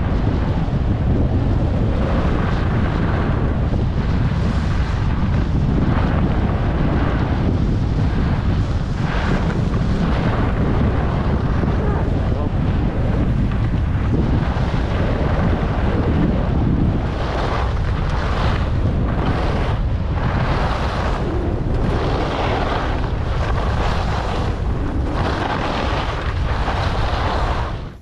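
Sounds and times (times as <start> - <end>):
wind rushing over microphone: 0.0 - 28.0
skis scraping on snow: 1.5 - 28.0.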